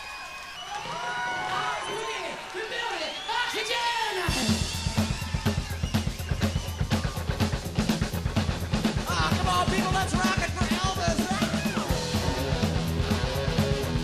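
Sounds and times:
rock music with drums and bass: 4.3s - 14.0s.

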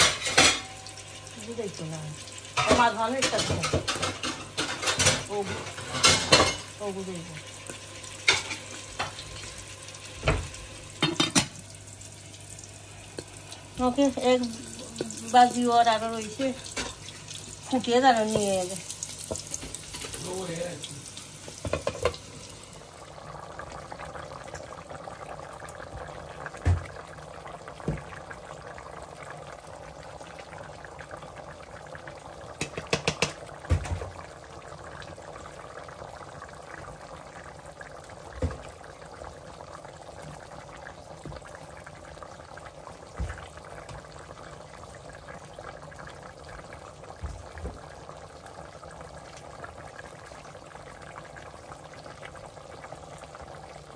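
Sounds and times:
food sizzling in pan: 0.0s - 53.9s
utensil knocking on cookware: 32.6s - 33.4s.

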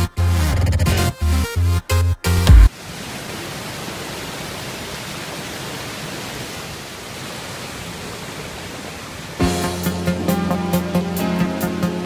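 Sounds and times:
water rushing over rocks: 2.7s - 9.4s.

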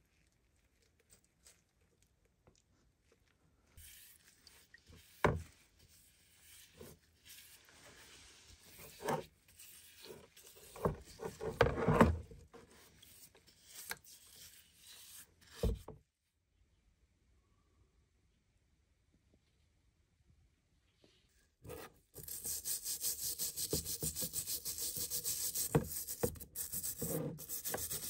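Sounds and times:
brush scrubbing metal in liquid: 3.8s - 11.9s, 12.6s - 15.5s, 21.7s - 28.0s.

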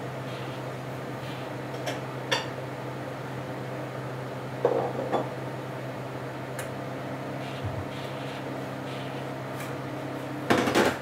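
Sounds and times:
steady low hum: 0.0s - 10.6s
dishes clinking and knocking: 4.6s - 5.3s.

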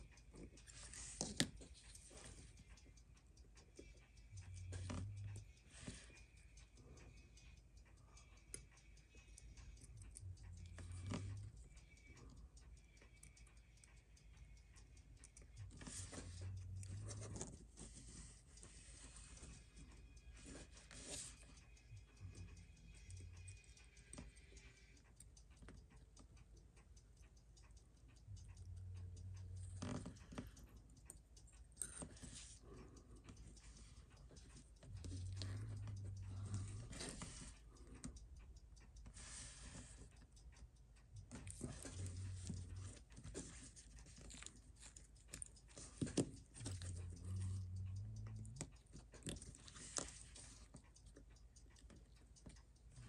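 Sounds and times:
metal tweezers clicking and scraping: 28.6s - 33.4s, 41.2s - 52.5s.

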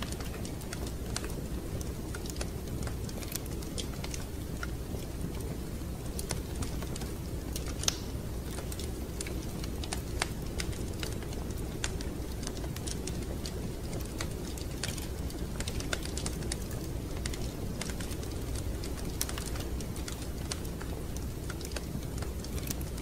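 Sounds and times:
wood fire crackling: 0.0s - 23.0s.

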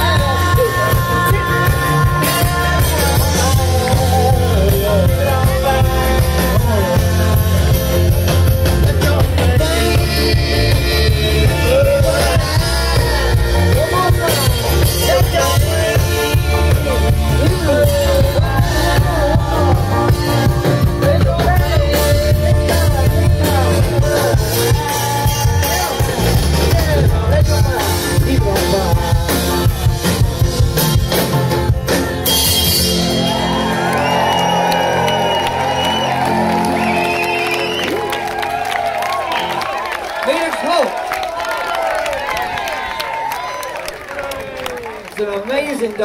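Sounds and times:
person singing: 0.0s - 31.5s
live band playing: 0.0s - 46.0s
crowd shouting and whooping: 23.0s - 27.4s, 31.9s - 45.6s.

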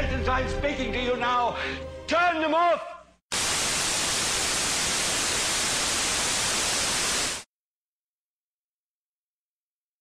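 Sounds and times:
television static hiss: 3.4s - 7.4s.

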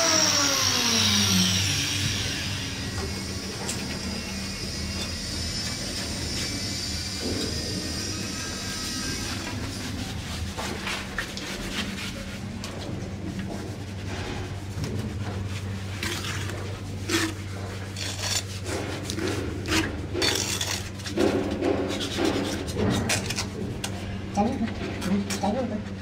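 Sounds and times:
steady low hum: 0.0s - 26.0s
hand tool scraping: 15.2s - 24.0s.

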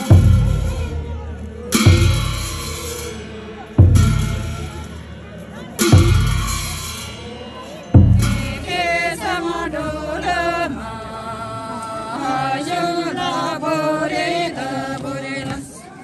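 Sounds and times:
group chanting in unison: 5.8s - 15.9s.

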